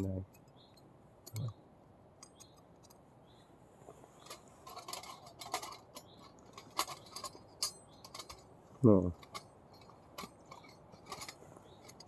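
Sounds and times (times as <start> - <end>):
metal panels clicking and clinking: 4.2 - 12.0.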